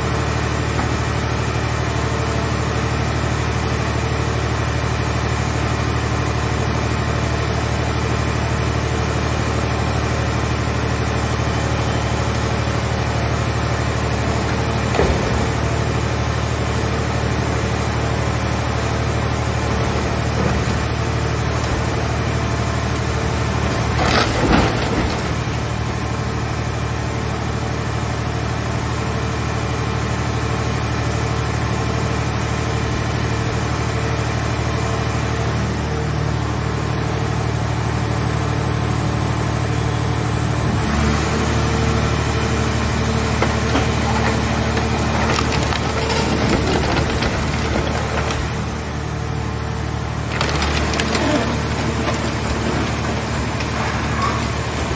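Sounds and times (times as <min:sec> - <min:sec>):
hydraulic hum and whine: 0:00.0 - 0:29.3, 0:31.8 - 0:54.9
sheet metal crunching: 0:43.4 - 0:49.0, 0:50.3 - 0:54.9.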